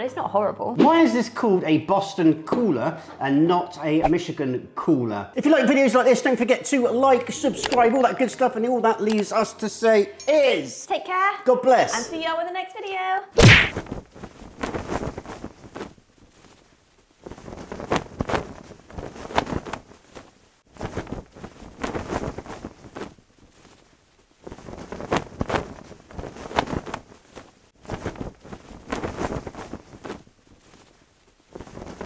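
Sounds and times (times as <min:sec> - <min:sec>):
flag flapping in wind: 0:13.6 - 0:32.0.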